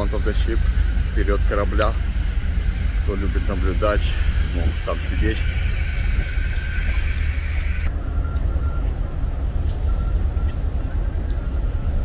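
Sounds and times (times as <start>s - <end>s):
ship machinery running: 0.0s - 12.0s.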